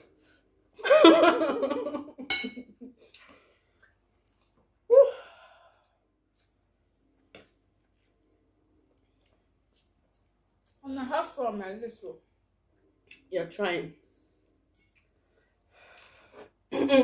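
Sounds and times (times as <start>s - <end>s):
voiced sigh: 4.9s - 5.9s.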